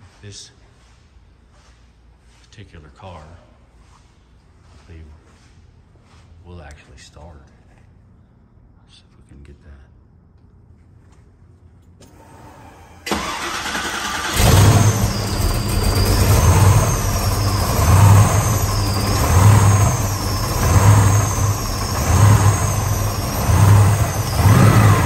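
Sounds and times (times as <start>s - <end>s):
engine starter cranking: 12.1s - 25.0s
car engine surging idle: 12.2s - 25.0s
engine revving: 12.2s - 25.0s
high wavering whine: 14.6s - 25.0s.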